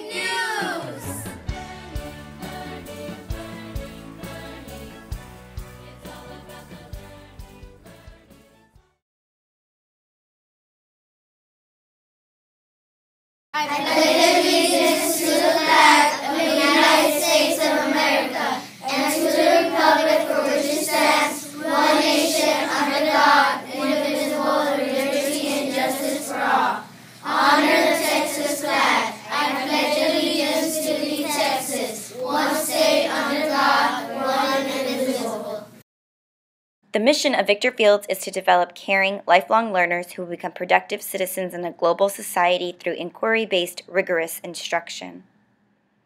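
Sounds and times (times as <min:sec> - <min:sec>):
children reciting in unison: 0:00.0 - 0:01.4, 0:13.6 - 0:35.8.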